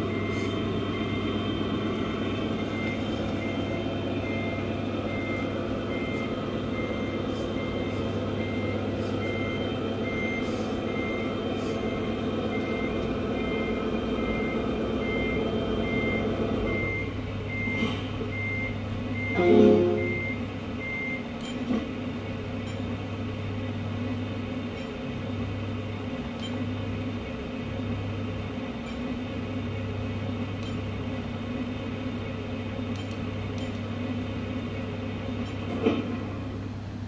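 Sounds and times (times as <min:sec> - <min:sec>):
reversing beeps: 0:00.0 - 0:01.4, 0:02.0 - 0:21.6
diesel engine idling sound: 0:00.0 - 0:37.0.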